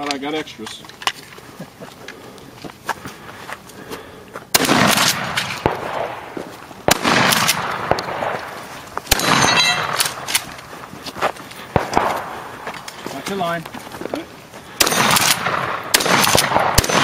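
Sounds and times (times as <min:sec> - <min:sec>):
rolling echo: 0:03.1 - 0:17.0
rifle shots: 0:04.5 - 0:10.6, 0:11.7 - 0:12.6, 0:14.7 - 0:17.0.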